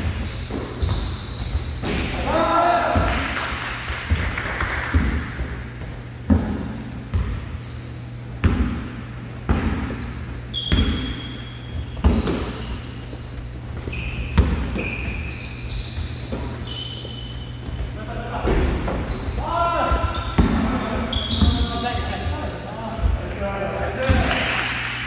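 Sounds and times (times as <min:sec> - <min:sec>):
basketball bouncing on wood floor: 0:00.0 - 0:02.0, 0:04.1 - 0:07.5, 0:08.4 - 0:08.8, 0:09.4 - 0:12.7, 0:13.7 - 0:15.2, 0:19.9 - 0:21.8
sneakers squeaking on court: 0:00.0 - 0:02.1, 0:04.9 - 0:23.2
steady low hum: 0:00.0 - 0:25.0.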